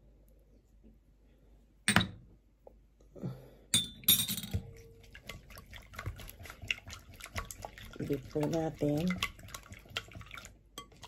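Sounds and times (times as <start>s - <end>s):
eggs being beaten in bowl: 4.5s - 11.0s.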